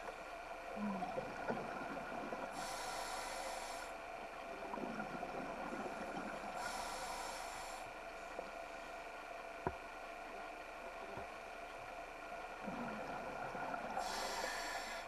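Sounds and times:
steady hum: 0.0 - 15.0
regulator hissing inhalations: 2.6 - 4.0, 6.6 - 7.9, 14.0 - 15.0
bubbling exhalations: 12.6 - 14.4.

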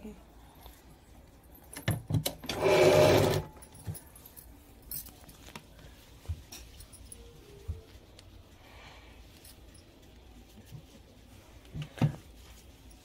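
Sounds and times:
sewing machine stitching: 2.4 - 3.5.

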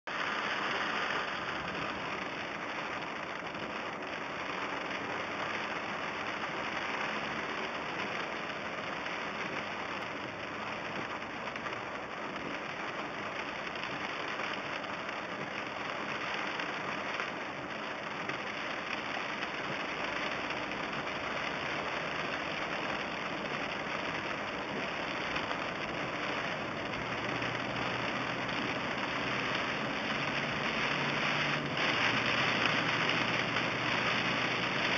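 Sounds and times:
heavy rain on car roof: 0.0 - 34.9
car engine humming: 22.6 - 34.9.

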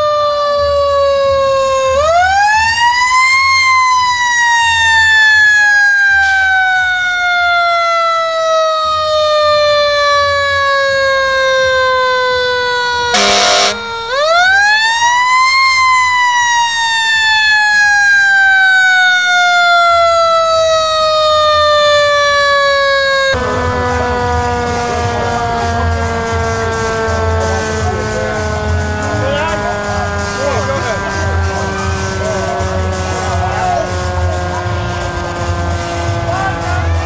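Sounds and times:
horn blast: 13.1 - 14.2.

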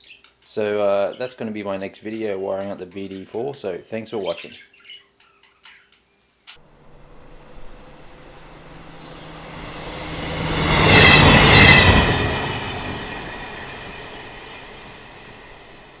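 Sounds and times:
high squealing: 6.6 - 15.9
train passing: 6.6 - 16.0.

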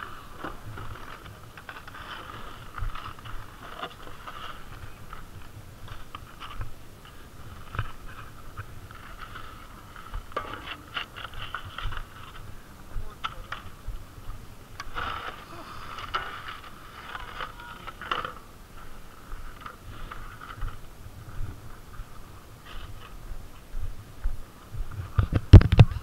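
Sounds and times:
snowboard gear clicking: 0.0 - 20.9
wind rumble on microphone: 18.6 - 26.0.

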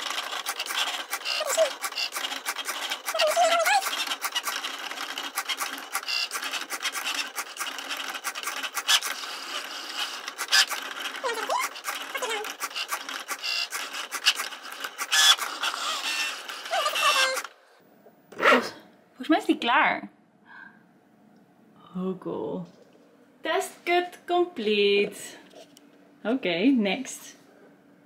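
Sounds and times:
quick clicks: 0.0 - 17.5
cutting machine motors whirring: 0.0 - 17.6.

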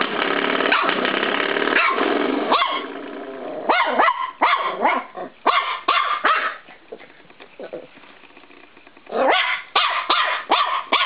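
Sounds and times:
high-pitched puppy barks: 0.7 - 1.0, 1.8 - 2.9, 3.7 - 6.7, 9.1 - 11.0
puppy yipping: 1.8 - 2.9, 3.7 - 6.7, 9.1 - 11.0
puppy growling: 2.7 - 5.5, 6.3 - 9.7.

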